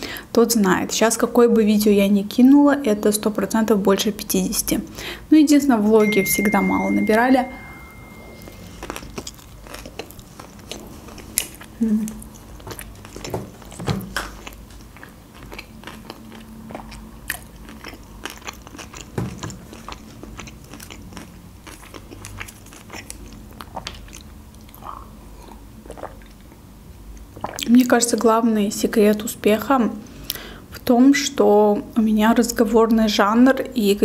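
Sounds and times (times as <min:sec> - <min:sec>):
low hums: 0:06.0 - 0:09.5
close chewing with mouth clicks: 0:08.7 - 0:27.9.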